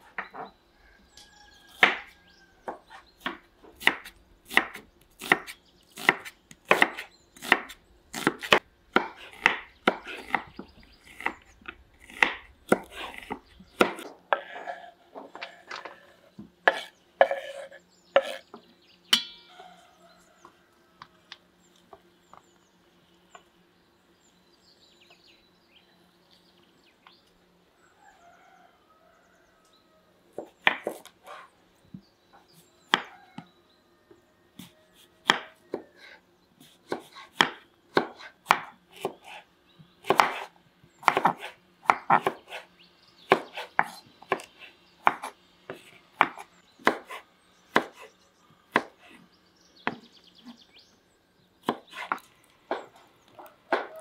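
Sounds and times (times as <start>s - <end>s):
knife chopping on wooden board: 1.7s - 2.1s, 2.7s - 11.4s, 12.0s - 14.8s, 16.6s - 18.4s, 30.4s - 31.5s, 32.9s - 33.2s, 34.6s - 35.9s, 36.6s - 39.4s, 40.0s - 42.7s, 43.3s - 48.0s, 48.7s - 49.1s, 49.8s - 50.6s, 51.6s - 52.9s, 53.7s - 54.0s.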